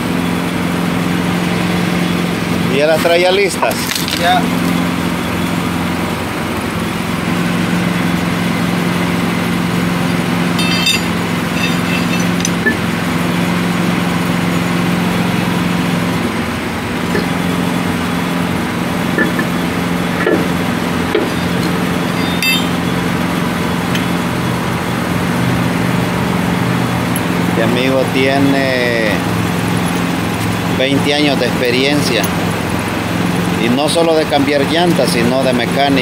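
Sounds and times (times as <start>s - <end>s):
engine idling: 0.0s - 36.0s
metallic clinks of lug wrench: 10.6s - 12.8s, 21.3s - 22.8s.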